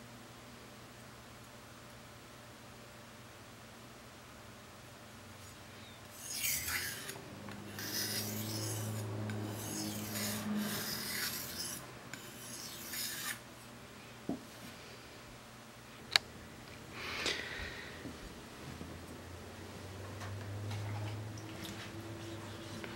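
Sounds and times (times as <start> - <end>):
knife scraping on whetstone: 6.1 - 13.4.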